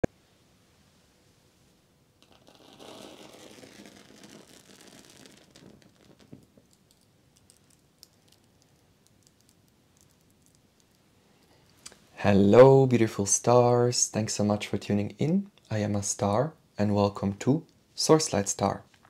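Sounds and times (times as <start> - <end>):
faint crackling of burning: 2.2 - 12.0.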